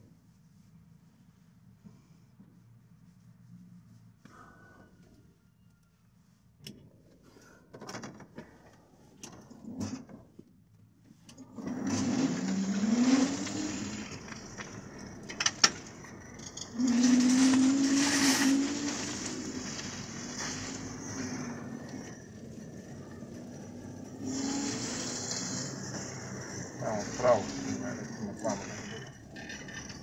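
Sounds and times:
electric motor whine: 11.6s - 14.7s, 16.5s - 29.6s.

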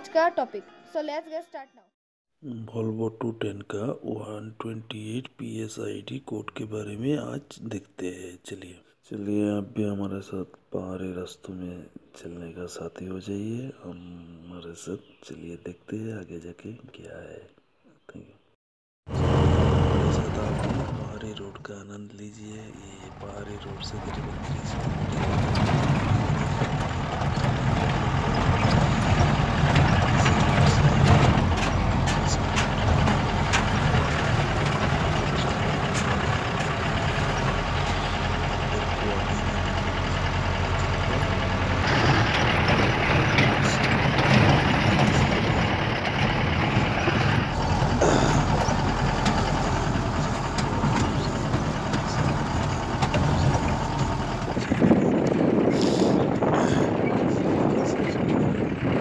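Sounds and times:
truck passing: 19.1s - 21.6s, 22.4s - 59.0s
vehicle engine and road noise: 19.1s - 59.0s.

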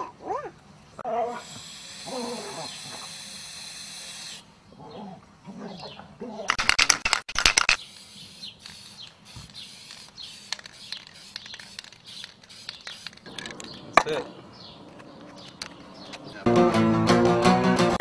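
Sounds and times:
faint steady hiss: 0.0s - 6.4s, 7.8s - 15.7s
spray can ball rattling: 6.5s - 14.2s.

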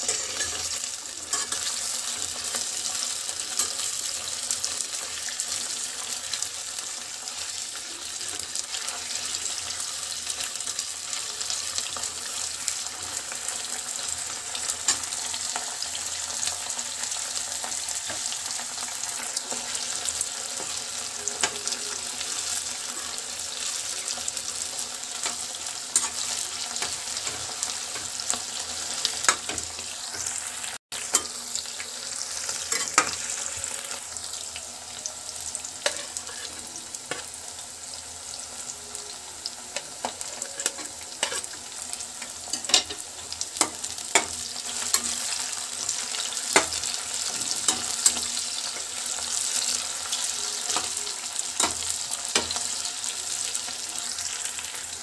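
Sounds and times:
metal spatula scraping a pan: 0.0s - 5.4s, 14.6s - 34.5s, 35.4s - 37.4s, 38.3s - 52.8s
onions sizzling in hot oil: 0.0s - 55.0s.

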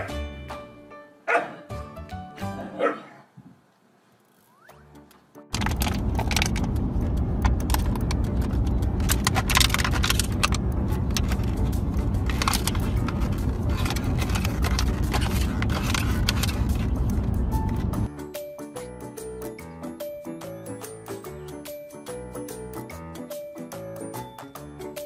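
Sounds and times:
car road noise rumble: 5.5s - 18.1s.

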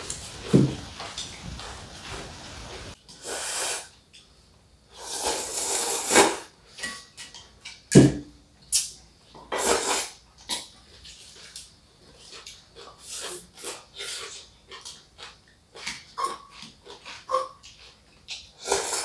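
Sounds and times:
noodles being slurped: 5.0s - 6.5s, 9.6s - 10.2s, 15.8s - 19.0s.

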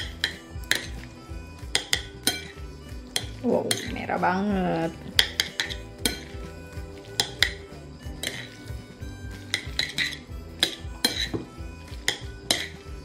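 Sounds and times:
metal chopsticks clinking on plate: 1.8s - 2.6s, 9.5s - 11.4s, 12.1s - 12.8s.

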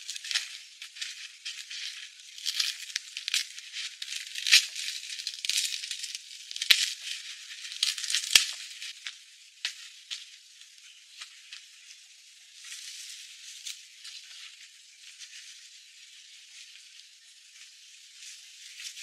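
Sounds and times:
logs and bark crackling and scraping: 0.0s - 11.9s.

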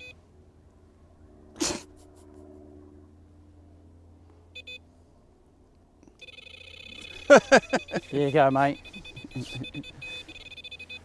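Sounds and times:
bite alarm bleeping: 6.2s - 11.0s.

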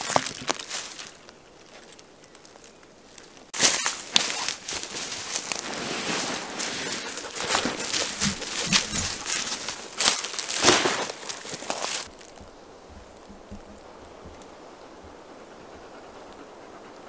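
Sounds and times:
tarp rustling and crackling: 0.0s - 13.2s.

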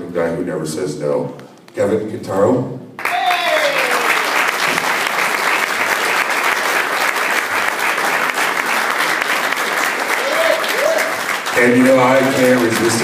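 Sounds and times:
audience applauding: 3.0s - 13.0s.

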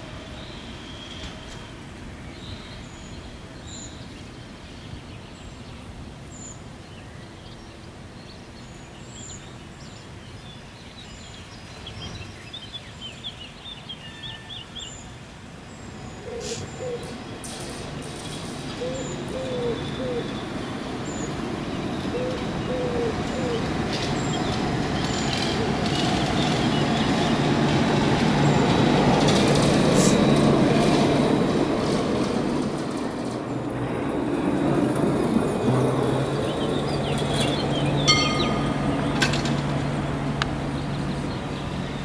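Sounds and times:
low cooing call: 16.2s - 17.2s, 18.8s - 20.4s, 22.1s - 23.7s
tram pulling away: 16.8s - 42.0s.

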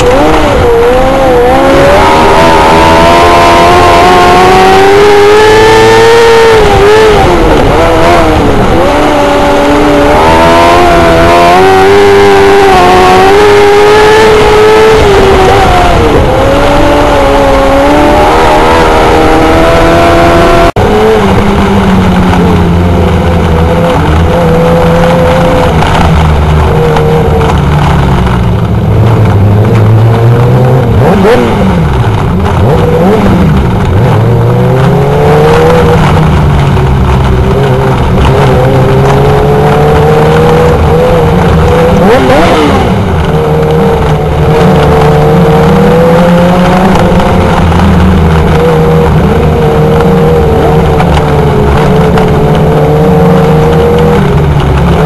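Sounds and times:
race car revving and passing: 0.0s - 55.0s
small race car engines running: 0.0s - 55.0s.

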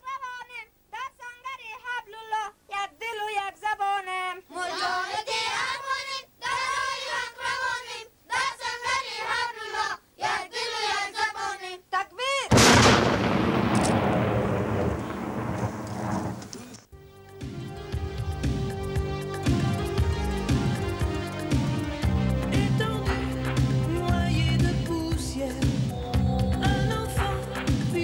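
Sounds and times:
children chanting: 4.5s - 11.8s
loud explosion-like boom: 12.5s - 16.7s.

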